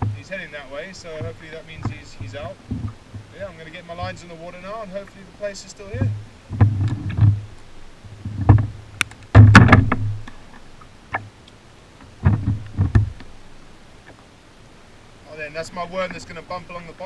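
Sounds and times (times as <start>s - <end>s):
knocks and hollow thumps on kayak: 0.0s - 5.2s, 5.8s - 11.4s, 12.0s - 14.3s.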